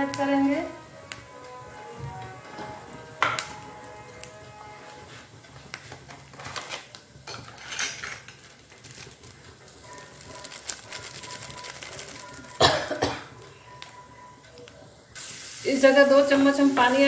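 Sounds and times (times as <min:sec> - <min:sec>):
spices frying in oil: 0:00.0 - 0:01.6, 0:02.8 - 0:17.0
kitchen utensils clattering: 0:06.1 - 0:08.6.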